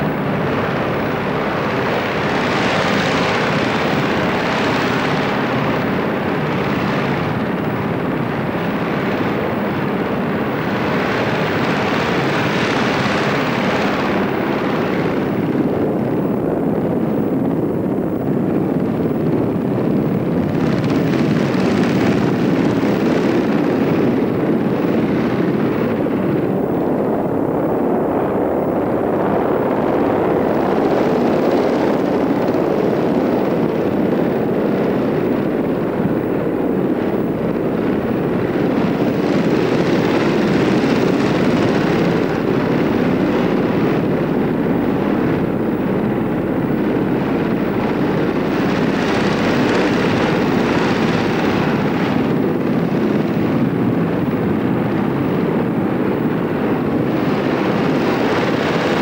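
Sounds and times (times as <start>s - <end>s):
propeller aircraft engine drone: 0.0s - 59.0s.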